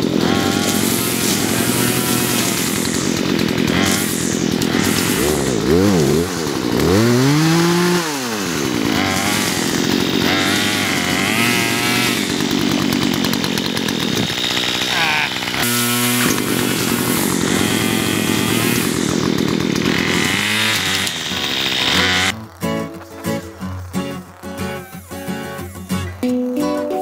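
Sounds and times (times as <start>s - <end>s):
chainsaw revving: 0.0s - 26.2s.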